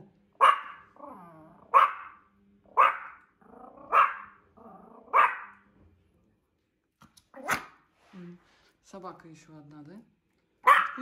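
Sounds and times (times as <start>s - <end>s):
small dog barking: 0.4s - 1.0s, 1.7s - 4.4s, 5.0s - 5.6s, 7.4s - 7.8s, 10.6s - 11.0s
dog growling: 1.0s - 1.7s, 3.4s - 5.2s.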